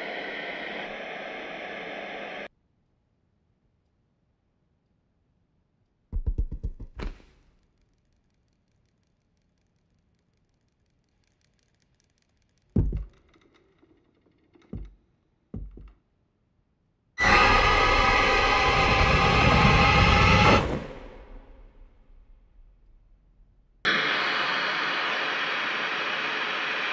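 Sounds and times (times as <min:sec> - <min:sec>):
quick knocks: 0:14.6 - 0:16.0
harsh noisy blast: 0:17.2 - 0:22.0.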